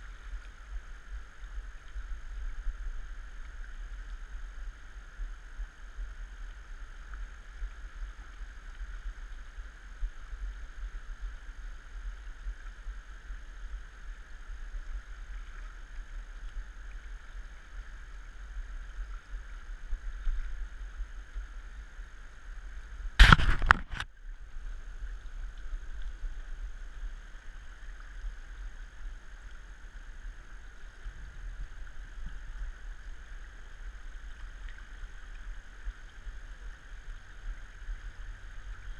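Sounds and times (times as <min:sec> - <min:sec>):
wind rumble on microphone: 0:00.0 - 0:38.9.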